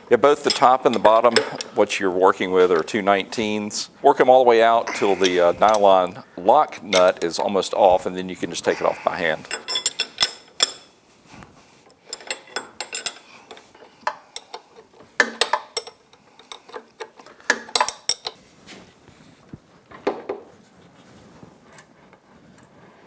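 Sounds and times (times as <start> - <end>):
wrench and nuts clinking on metal: 0.3 - 1.8, 5.1 - 7.4, 9.4 - 11.0, 11.9 - 18.4.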